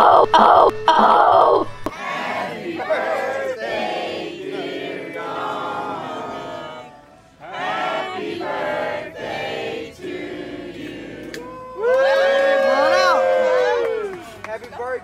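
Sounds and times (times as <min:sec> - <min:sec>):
choir singing: 0:01.8 - 0:11.6.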